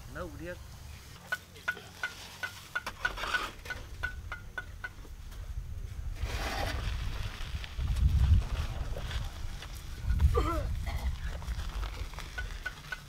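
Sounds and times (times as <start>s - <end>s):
bricks clunking into wheelbarrow: 1.3s - 5.0s.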